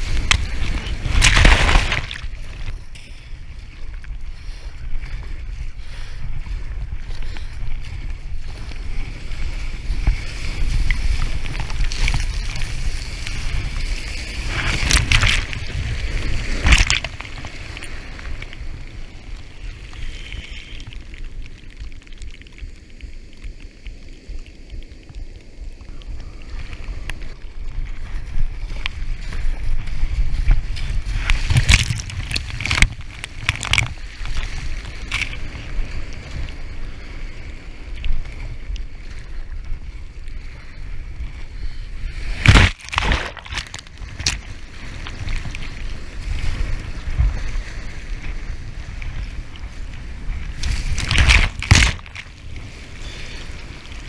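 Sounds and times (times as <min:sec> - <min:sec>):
sharp water splashes: 0:00.0 - 0:02.6, 0:14.4 - 0:17.9, 0:42.3 - 0:45.6
sea surf washing around kayak: 0:00.0 - 0:54.0
wind rumbling on microphone: 0:00.0 - 0:54.0.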